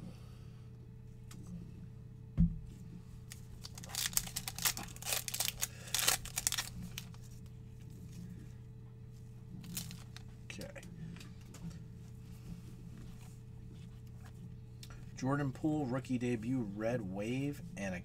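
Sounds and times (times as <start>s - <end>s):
steady low hum: 0.0s - 18.0s
low thump: 2.4s - 2.7s
foil wrapper tearing: 3.3s - 7.2s, 9.6s - 10.3s.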